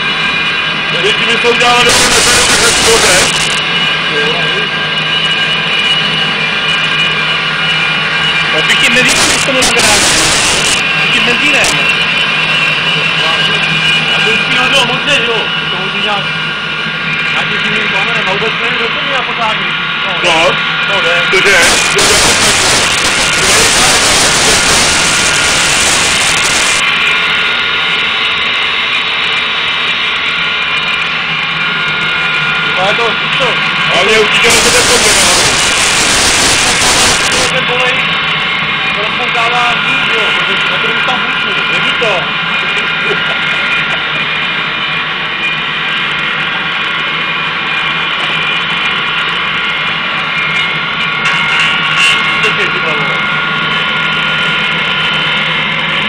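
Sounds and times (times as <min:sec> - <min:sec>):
high even whine: 0:00.0 - 0:56.0
stove flame roaring: 0:00.0 - 0:56.0
roar of blown air and flame: 0:01.8 - 0:03.8, 0:09.0 - 0:11.0, 0:21.4 - 0:27.7, 0:34.2 - 0:37.5.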